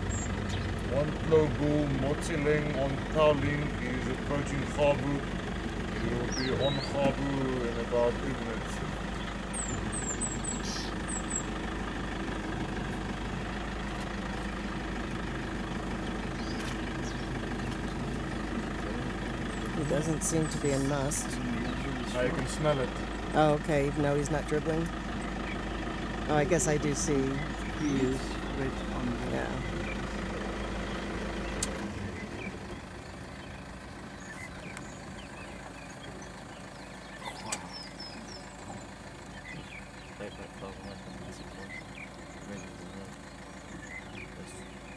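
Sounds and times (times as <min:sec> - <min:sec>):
vehicle engine idling: 0:00.0 - 0:44.9
sharp clicks: 0:31.5 - 0:31.9.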